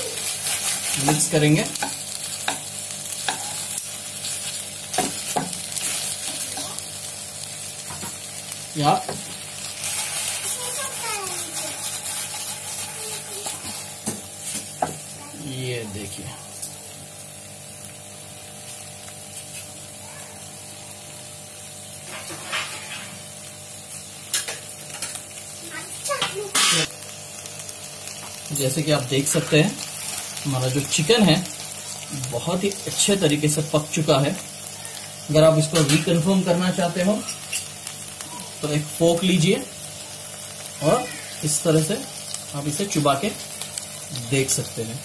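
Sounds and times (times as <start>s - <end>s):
chicken sizzling in frying pan: 0.0s - 45.0s
metal tongs scraping pan: 9.8s - 13.9s, 22.1s - 23.2s.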